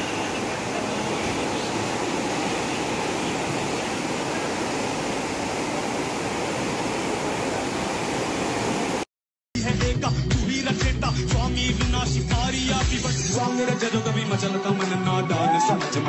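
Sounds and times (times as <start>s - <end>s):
flooded river rushing: 0.0s - 9.0s.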